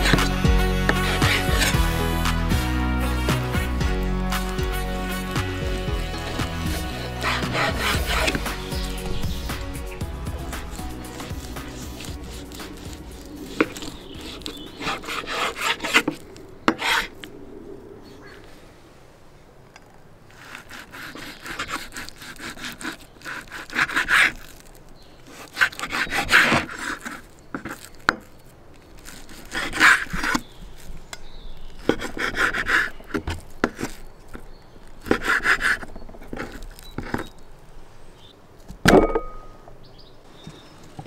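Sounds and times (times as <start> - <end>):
knife sawing through meat: 0.0 - 2.4, 3.4 - 17.1, 20.3 - 24.7, 25.3 - 27.9, 29.0 - 30.5, 31.8 - 33.2.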